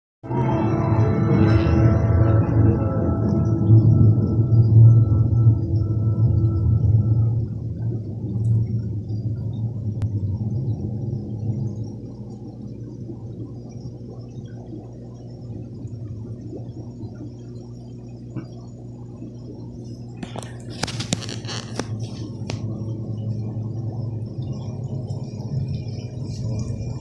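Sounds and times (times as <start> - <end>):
aquarium pump humming: 0.3 - 27.0
sharp clicks and rattles: 20.2 - 22.6.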